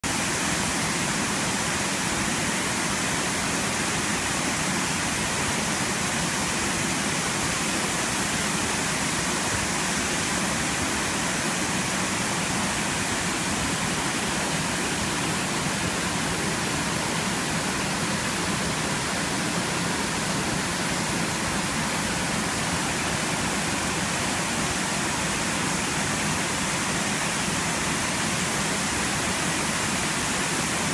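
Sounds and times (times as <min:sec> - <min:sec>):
waterfall rushing: 0:00.0 - 0:30.9.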